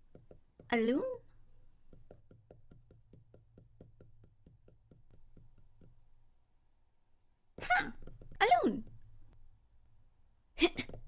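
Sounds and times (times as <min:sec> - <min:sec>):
cartoon footstep taps: 0:01.8 - 0:06.0.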